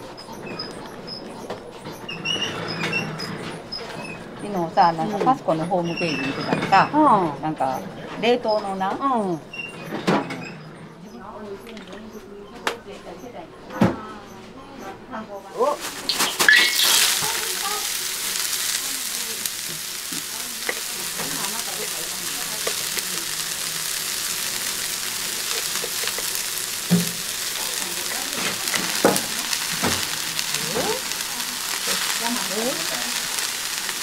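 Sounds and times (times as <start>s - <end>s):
cabbage sizzling in a wok: 15.5s - 34.0s.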